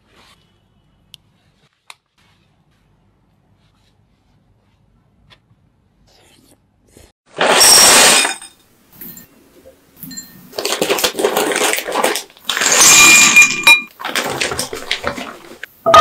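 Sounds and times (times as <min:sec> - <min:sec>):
plastic packet crinkling and tearing: 0:10.5 - 0:12.8.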